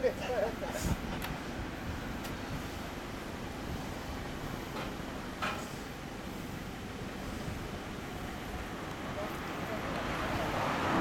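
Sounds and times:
low outdoor rumble: 0.0s - 11.0s
wind on microphone: 0.7s - 5.2s.

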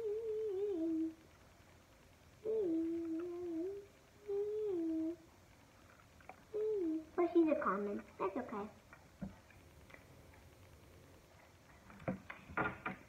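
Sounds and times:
girl humming: 0.0s - 1.2s, 2.4s - 5.2s, 6.6s - 7.2s.

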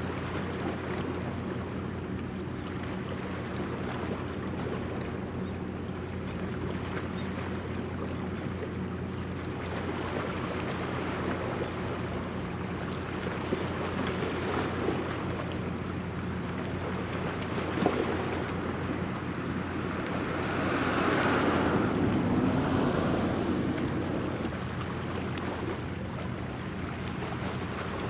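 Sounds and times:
water noise: 0.0s - 28.0s
wind: 0.0s - 28.0s
ship engine drone: 7.4s - 28.0s.

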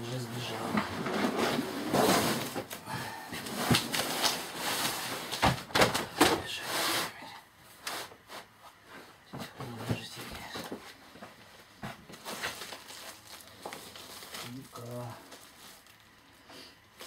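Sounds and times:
flexible sheet scraping and rustling: 0.8s - 2.6s.

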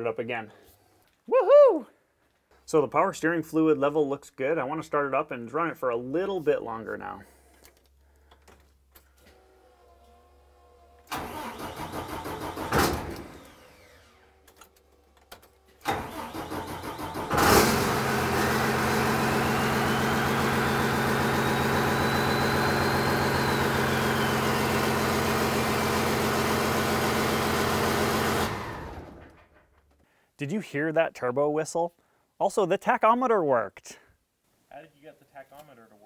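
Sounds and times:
engine starter cranking: 9.3s - 24.9s
diesel engine idling: 15.9s - 29.2s
turbo whistle: 19.4s - 24.8s.

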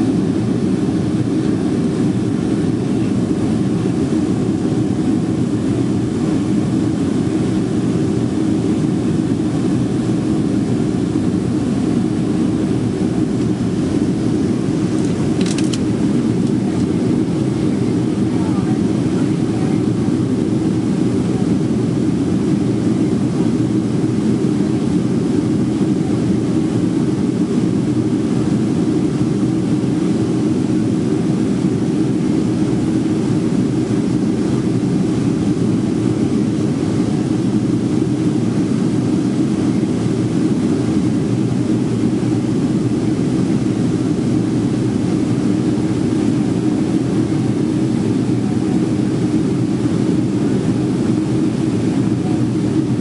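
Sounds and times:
jet engines droning: 0.0s - 53.0s
rushing airflow: 0.0s - 53.0s.

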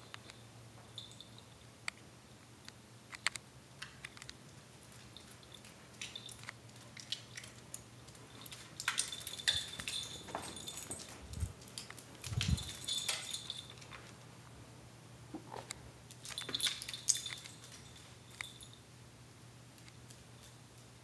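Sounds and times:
light clinks: 0.0s - 1.7s, 5.0s - 14.1s, 16.1s - 18.8s
dog claws clicking on wood floor: 3.8s - 14.2s, 16.1s - 18.6s.

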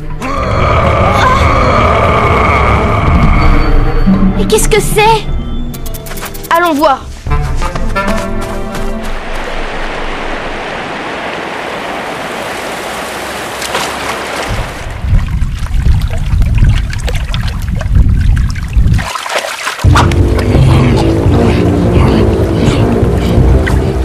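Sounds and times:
waterfall rushing: 9.1s - 15.0s
rumbling underwater sound: 14.4s - 19.1s.

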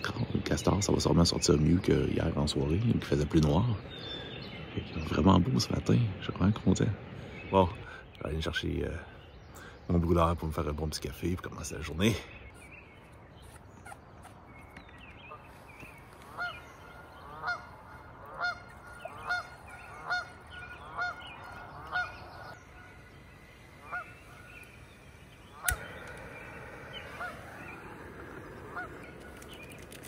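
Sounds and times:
faint steady hiss: 15.5s - 30.0s
goose honking: 16.2s - 23.1s, 23.7s - 24.8s, 25.5s - 29.4s
sharp click: 25.6s - 26.4s.

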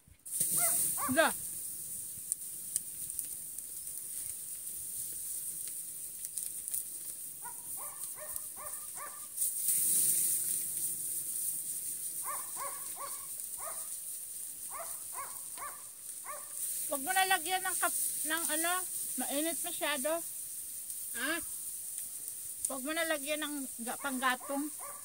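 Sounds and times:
steady high hiss: 0.0s - 25.0s
dog yelping: 0.6s - 1.3s, 7.4s - 9.3s, 12.2s - 13.9s, 14.7s - 16.6s, 24.0s - 25.0s.

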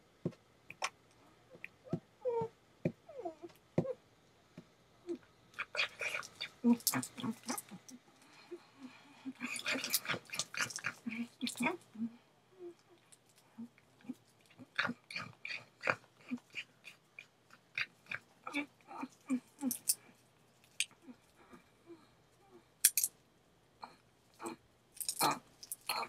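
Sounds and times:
squirrel gnawing a nut: 5.1s - 12.0s, 12.6s - 21.6s
nut cracking: 22.8s - 23.1s, 25.0s - 26.0s.

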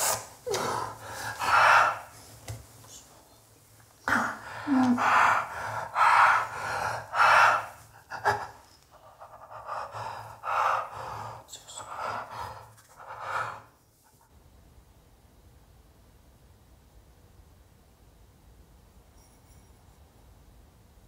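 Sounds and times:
heavy breathing and gasps: 0.0s - 2.1s.

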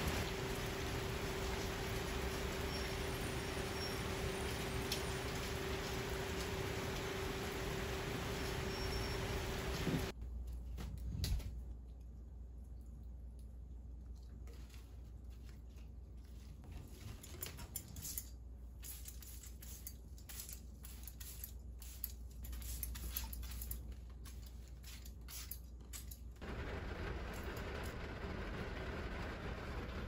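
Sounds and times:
loud steady hiss: 0.0s - 10.1s
low steady hum: 0.0s - 30.0s.

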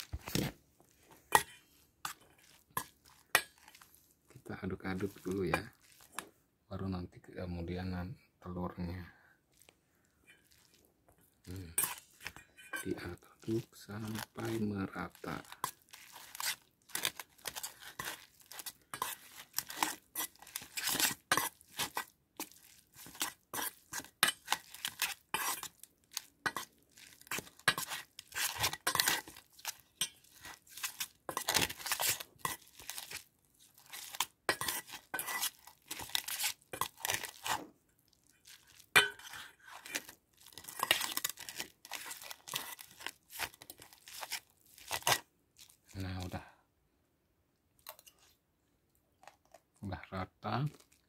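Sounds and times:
utensil scraping a steel pan: 18.9s - 22.0s, 27.3s - 29.4s, 33.9s - 37.6s.

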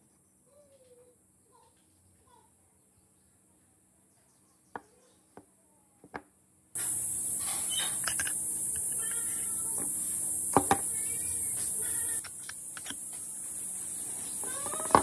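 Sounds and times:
steady high hiss: 6.8s - 15.0s
metal parts clicking: 7.7s - 9.1s.

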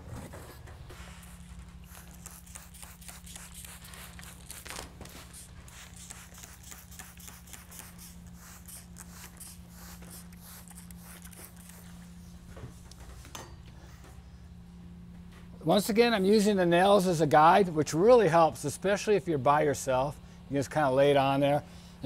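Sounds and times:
steady low hum: 0.0s - 22.0s
spray bottle squirting: 1.9s - 11.8s.

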